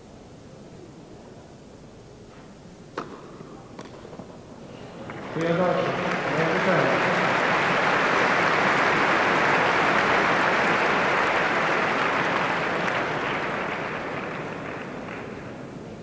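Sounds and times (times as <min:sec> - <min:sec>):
crowd clapping: 0:05.0 - 0:16.0.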